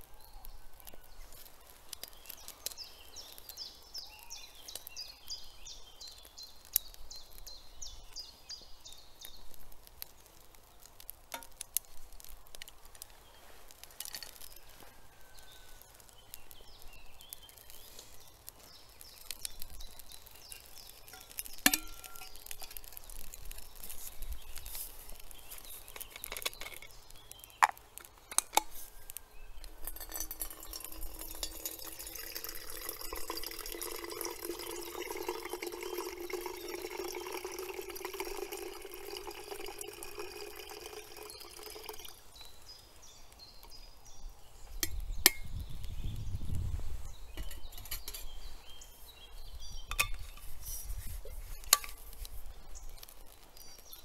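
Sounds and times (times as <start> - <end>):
utensils clinking: 21.1 - 22.8, 29.8 - 42.1
water pouring into container: 30.0 - 42.2.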